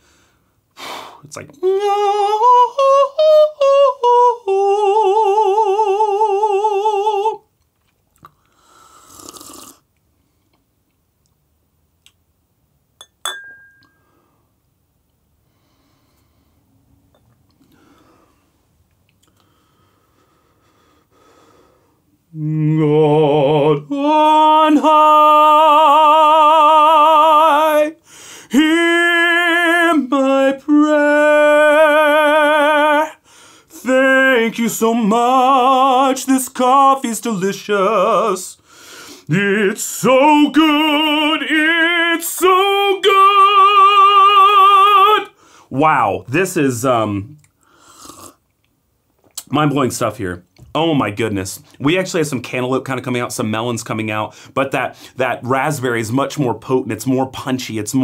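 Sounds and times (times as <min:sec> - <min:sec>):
man singing with vibrato: 0:01.4 - 0:07.5, 0:22.3 - 0:47.4
slurping sip of coffee: 0:09.0 - 0:09.8, 0:47.9 - 0:48.4
glassy clink with ring: 0:13.0 - 0:14.1.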